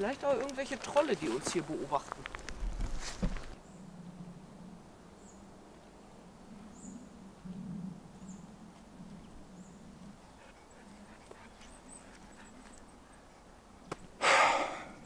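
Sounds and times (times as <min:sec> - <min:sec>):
loud breath out: 0:14.2 - 0:15.0.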